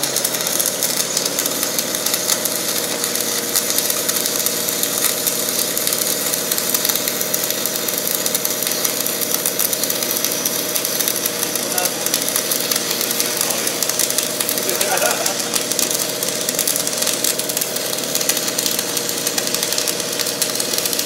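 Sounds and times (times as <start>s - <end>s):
welding generator engine running: 0.0s - 21.0s.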